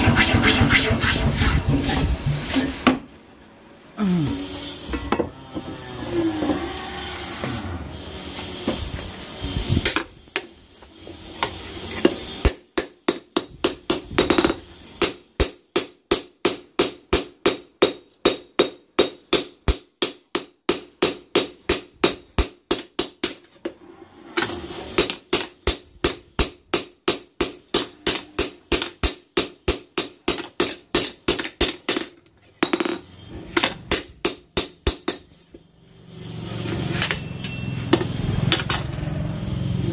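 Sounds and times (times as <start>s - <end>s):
hammer striking metal on anvil: 12.4s - 23.1s, 25.0s - 32.0s, 33.6s - 35.2s.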